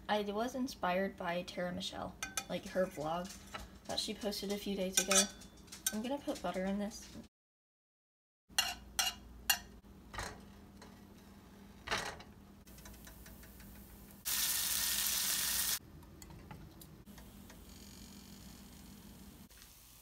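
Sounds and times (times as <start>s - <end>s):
knife clinking against pan: 5.0s - 6.0s, 8.6s - 9.7s
butter sizzling in pan: 12.9s - 15.8s, 19.5s - 20.0s.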